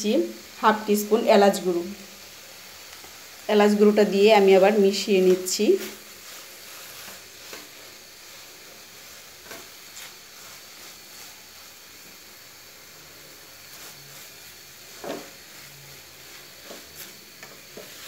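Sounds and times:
food sizzling in a pan: 0.0 - 18.0
spatula scraping a pan: 5.1 - 12.2, 12.8 - 18.0.

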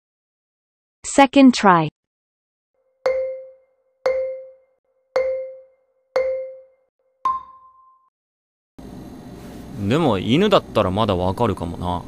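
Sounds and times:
countdown timer notes: 3.0 - 7.9.

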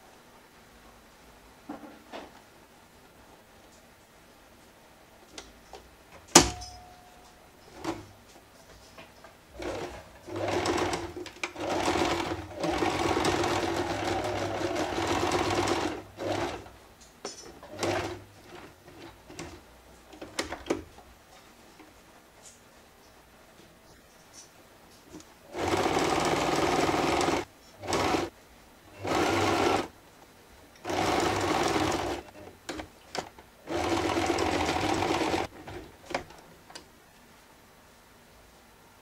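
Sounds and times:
sewing machine stitching: 9.6 - 16.7, 17.5 - 19.6, 25.5 - 28.3, 28.9 - 29.9, 30.8 - 36.2.

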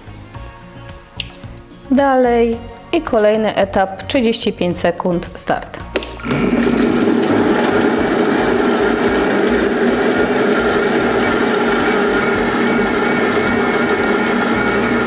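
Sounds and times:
kitchen robot motor running: 6.2 - 15.0.

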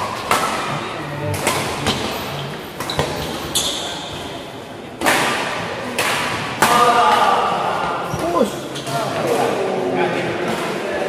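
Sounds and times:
shoe squeak: 0.0 - 4.4.

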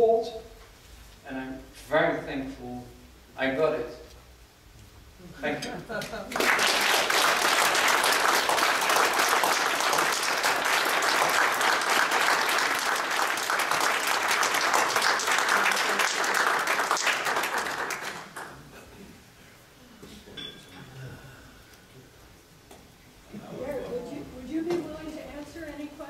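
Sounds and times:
audience applauding: 6.2 - 18.6.

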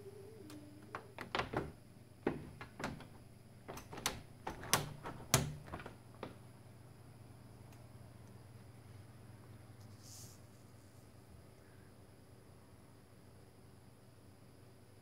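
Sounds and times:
sharp clicks and knocks on glass door: 0.9 - 6.4.

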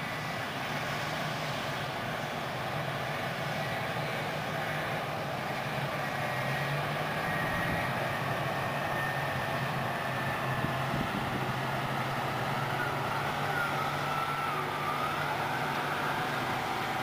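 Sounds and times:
diesel engines running hard: 0.0 - 17.0
faint high whine: 3.0 - 11.5.

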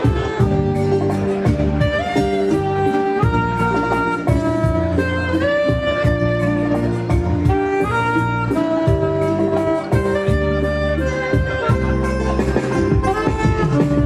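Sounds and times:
band backing with bass and beat: 0.0 - 14.0
sliding lead melody: 0.0 - 14.0.

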